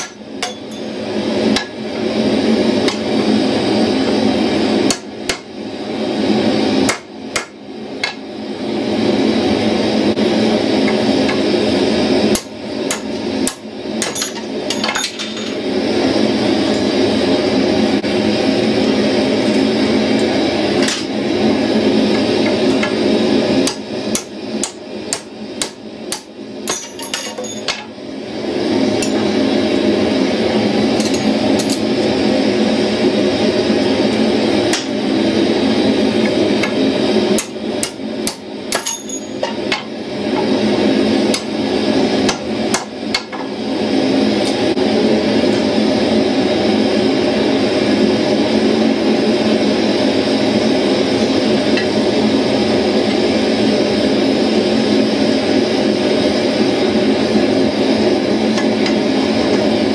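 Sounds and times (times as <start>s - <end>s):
hammer striking steel on anvil: 0.0s - 1.0s, 23.6s - 27.9s, 37.4s - 39.9s
forge roaring: 0.0s - 26.7s, 27.7s - 38.8s, 39.4s - 59.9s.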